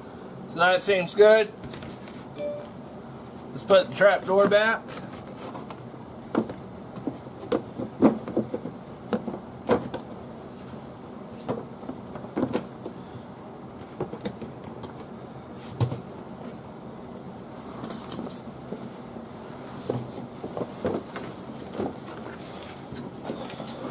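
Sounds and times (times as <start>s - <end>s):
rubber mat thumps and knocks: 6.3s - 10.1s, 11.4s - 12.9s, 15.7s - 16.1s.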